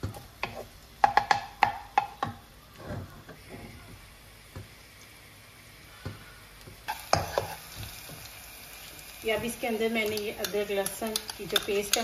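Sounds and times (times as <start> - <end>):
wooden spatula knocking pan: 0.0 - 2.4
onion sizzling in hot oil: 3.4 - 12.0.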